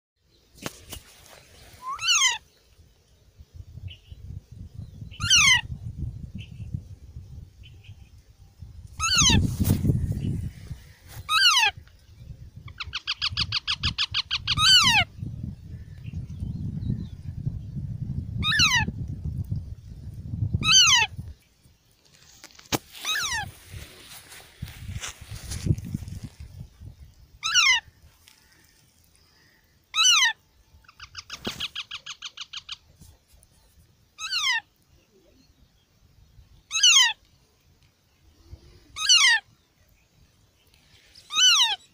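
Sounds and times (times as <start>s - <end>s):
parakeet meow-like calls: 1.8s - 2.4s, 5.2s - 5.7s, 18.4s - 18.9s, 20.6s - 21.1s, 23.0s - 23.5s, 27.4s - 27.8s, 34.2s - 34.6s, 36.7s - 37.2s
parakeet calls sliding down: 22.2s - 26.1s.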